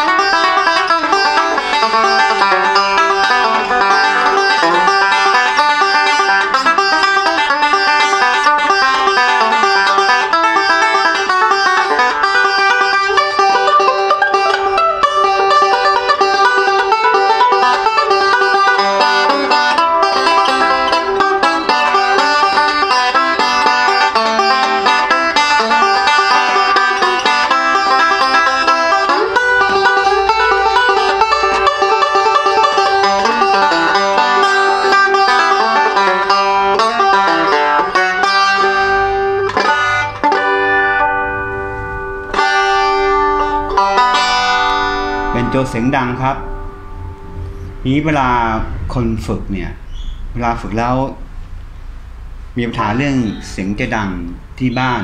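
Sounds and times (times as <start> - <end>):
banjo picking: 0.0 - 50.3, 51.0 - 54.7.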